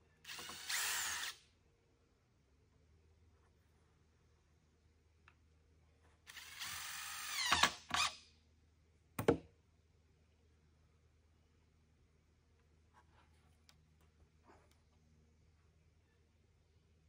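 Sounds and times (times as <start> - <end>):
cordless drill driving a screw: 0.2 - 1.4, 6.3 - 8.2.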